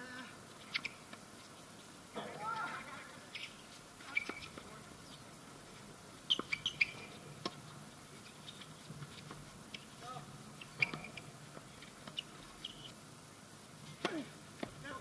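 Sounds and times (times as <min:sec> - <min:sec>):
tennis ball hit by racket: 0:14.0 - 0:14.7.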